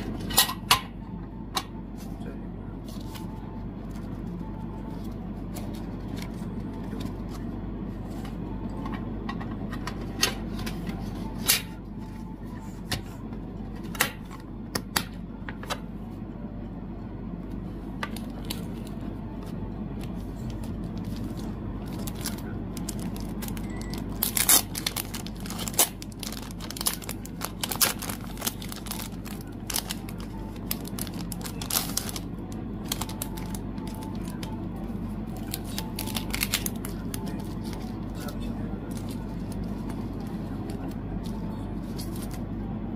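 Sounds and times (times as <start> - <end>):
steady low hum: 0.0 - 42.9
plastic and paper rustling: 18.1 - 42.4.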